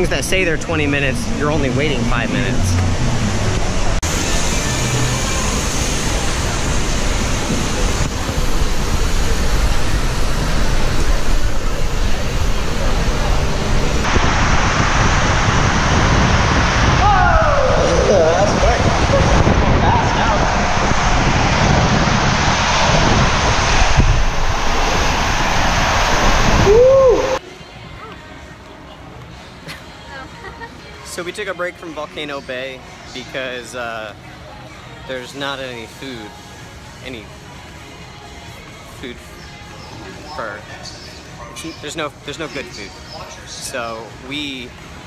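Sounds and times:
rush of water and air: 1.4s - 27.4s.

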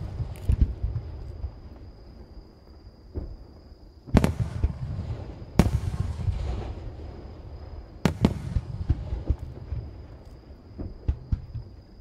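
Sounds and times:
firework shells booming: 4.1s - 10.0s.

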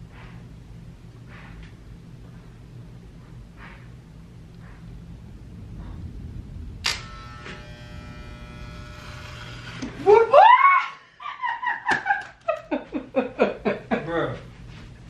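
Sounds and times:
electric beard trimmer buzzing: 6.8s - 12.0s
loud voice cry: 10.0s - 11.0s.

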